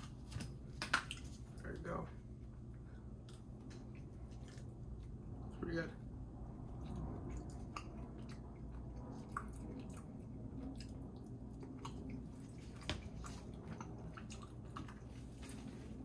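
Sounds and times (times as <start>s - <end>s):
person chewing food: 2.7s - 5.5s, 6.8s - 16.0s.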